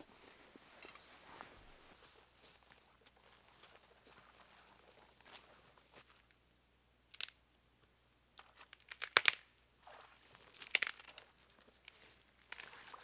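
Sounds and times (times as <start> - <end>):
dry undergrowth crunching underfoot: 0.0 - 6.2, 10.4 - 13.0
sapling cracking and snapping: 10.6 - 11.3.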